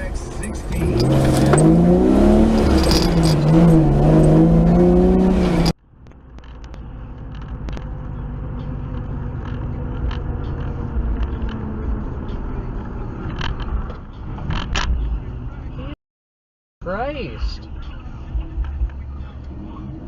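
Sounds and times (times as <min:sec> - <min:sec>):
car cabin engine rumble: 0:00.0 - 0:16.0.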